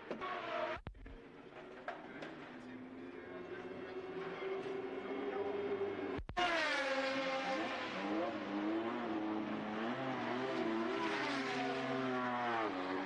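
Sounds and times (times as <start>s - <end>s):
racing car engine at high revs: 3.6s - 13.0s.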